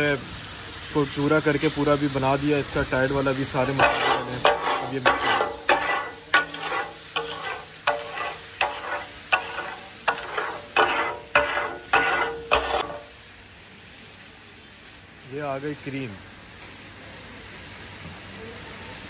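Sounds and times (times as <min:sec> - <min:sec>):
food sizzling: 0:00.0 - 0:19.0
metal spatulas clattering on griddle: 0:03.6 - 0:13.1.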